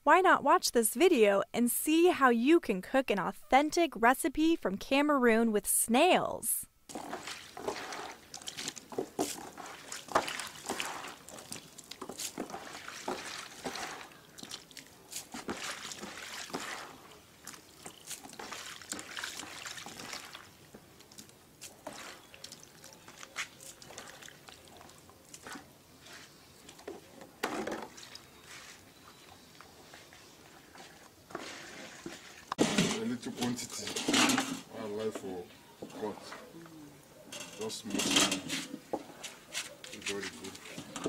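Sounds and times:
water sloshing and splashing: 6.9s - 25.7s, 26.6s - 28.8s, 30.0s - 33.0s.

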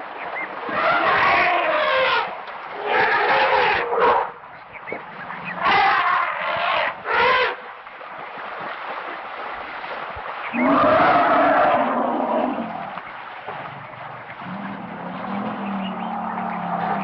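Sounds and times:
elephants calling: 10.5s - 13.0s, 14.4s - 17.0s.

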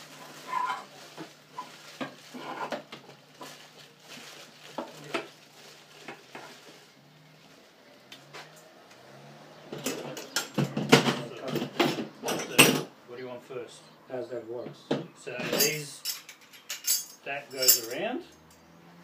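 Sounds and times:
metallic clinks and knocks: 15.4s - 18.6s.

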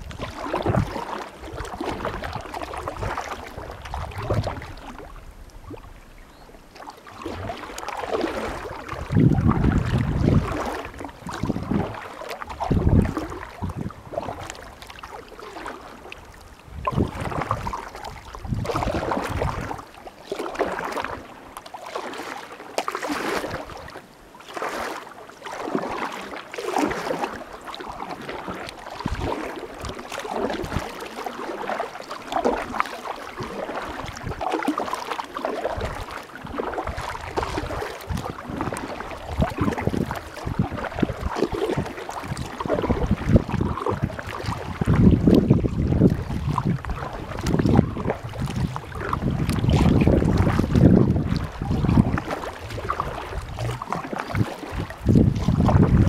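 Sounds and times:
wind buffeting microphone: 0.0s - 5.8s, 8.3s - 14.6s, 16.6s - 19.8s, 33.4s - 34.5s, 35.7s - 56.0s
kayak paddle splashing in water: 0.0s - 56.0s.

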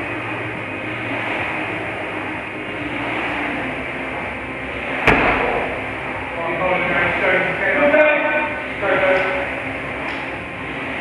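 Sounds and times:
busy gym din: 0.0s - 11.0s
loud heavy thud: 5.0s - 6.1s.

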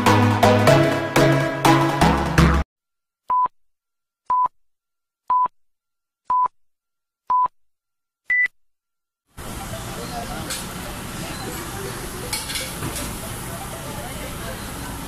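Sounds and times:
electronic music: 0.0s - 2.6s.

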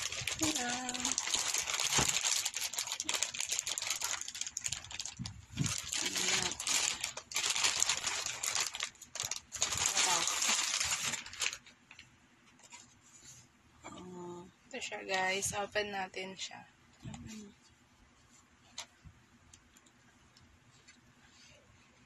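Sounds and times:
plastic wrapping crinkling: 0.0s - 12.9s.

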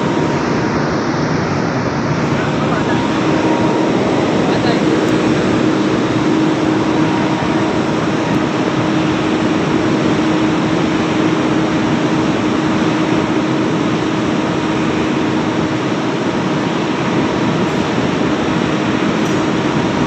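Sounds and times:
industrial machinery humming: 0.0s - 20.0s.

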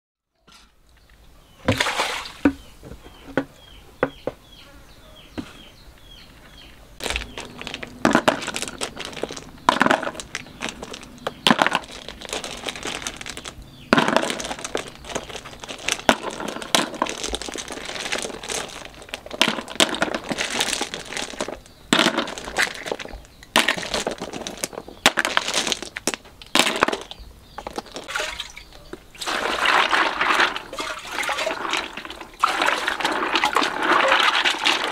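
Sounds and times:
clam shells clattering: 7.0s - 34.9s.

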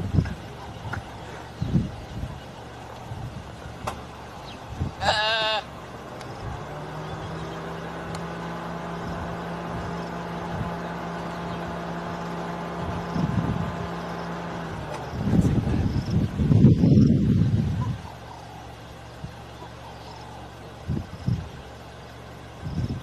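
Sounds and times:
vehicle engine idling: 0.0s - 23.0s
young impala bleating: 5.0s - 5.8s.

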